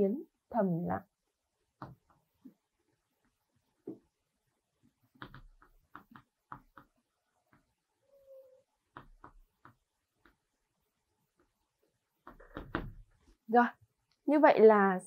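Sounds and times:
chalk tapping and scraping: 0:04.8 - 0:07.8, 0:08.9 - 0:10.5.

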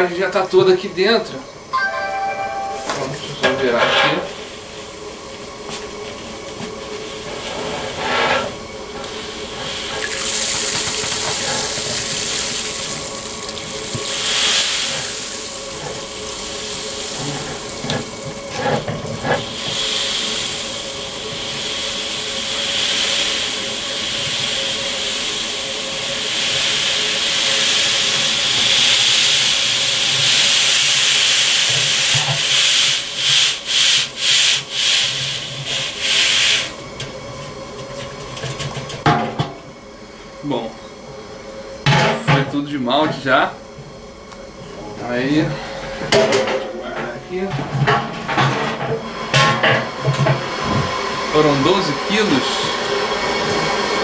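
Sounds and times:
grain pouring into water: 0:09.4 - 0:18.6.

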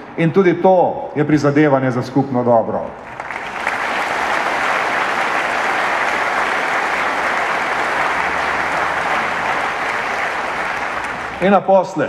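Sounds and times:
audience applauding: 0:03.0 - 0:11.7.

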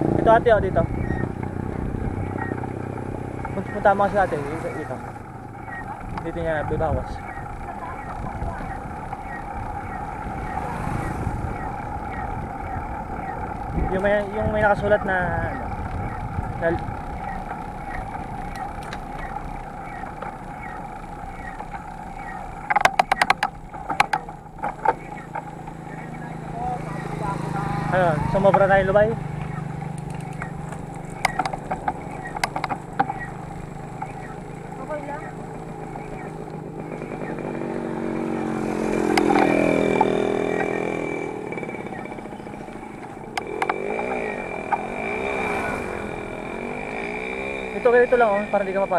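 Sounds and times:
small motorcycle engine running: 0:00.0 - 0:48.9
wind and road noise: 0:00.0 - 0:48.9
bike clicks and rattles: 0:04.8 - 0:10.7, 0:11.5 - 0:27.3, 0:28.4 - 0:45.5.

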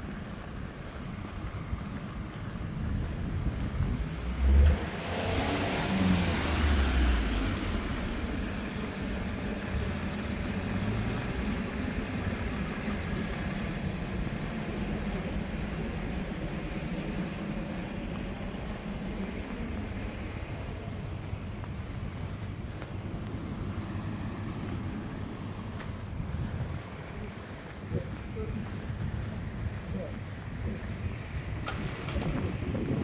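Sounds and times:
steady road noise: 0:00.0 - 0:33.0
vehicle passing on wet road: 0:02.8 - 0:27.7.

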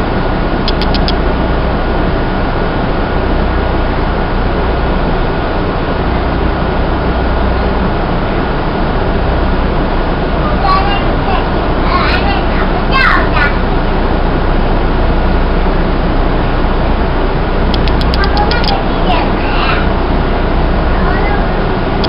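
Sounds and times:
subway train rumbling: 0:00.0 - 0:22.0
thin steady whine: 0:00.0 - 0:22.0
quick clicks: 0:00.7 - 0:01.2, 0:17.7 - 0:18.8.

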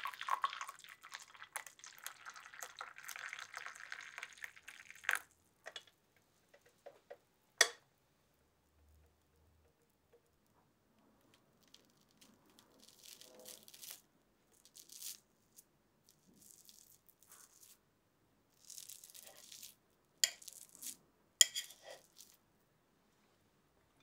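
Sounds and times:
scraping and rustling food: 0:11.5 - 0:17.8, 0:18.5 - 0:22.4.

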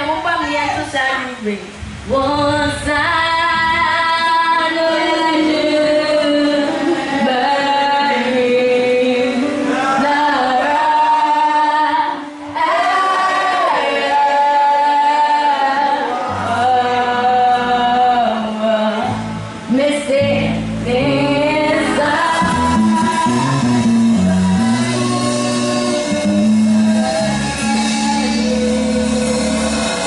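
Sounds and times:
woman singing gospel: 0:00.0 - 0:30.0
backing singers: 0:02.0 - 0:30.0
low accompanying notes: 0:19.1 - 0:30.0.

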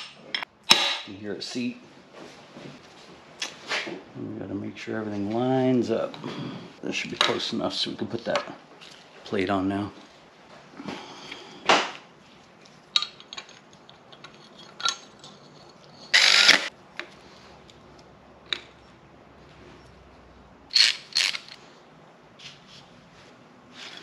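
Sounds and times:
metal parts clinking: 0:12.9 - 0:16.7, 0:20.7 - 0:21.6.

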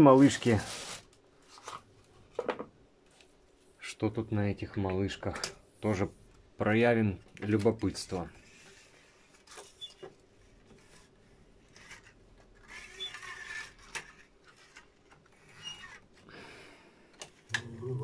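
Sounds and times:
tape rustling: 0:00.0 - 0:01.9.

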